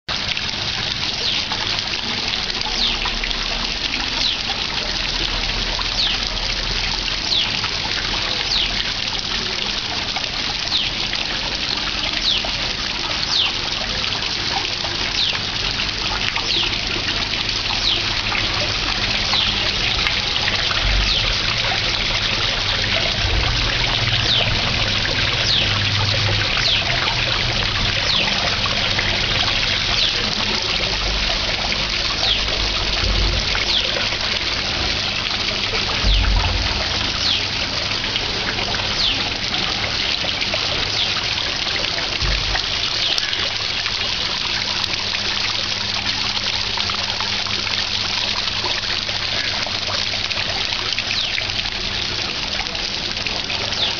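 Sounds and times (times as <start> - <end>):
fountain water splashing: 0.1 - 53.9
bird chirping: 25.4 - 25.8.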